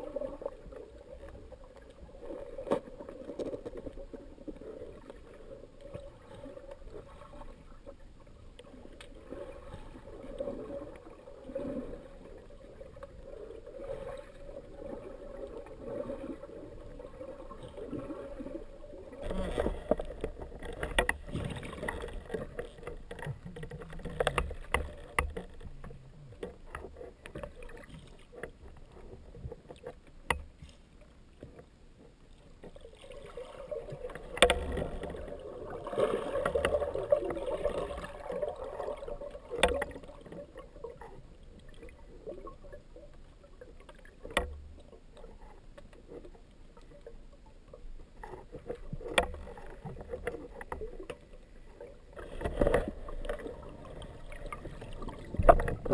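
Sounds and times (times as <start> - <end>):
underwater moving water: 0.0 - 55.9
sharp clicks and knocks: 30.2 - 30.6.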